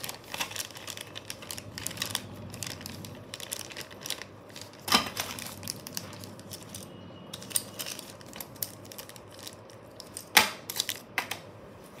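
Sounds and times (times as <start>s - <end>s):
plastic pieces rattling in bag: 0.0s - 11.0s
plastic bag crinkling: 0.0s - 11.1s.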